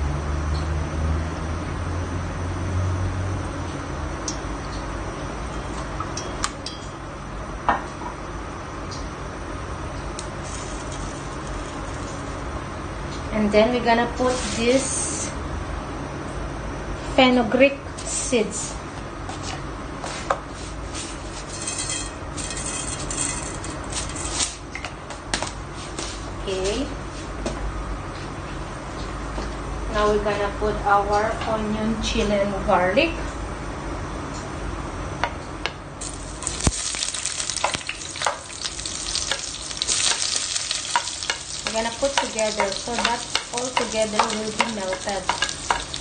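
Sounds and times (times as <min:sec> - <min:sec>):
seeds sizzling in hot oil: 0:36.0 - 0:46.0.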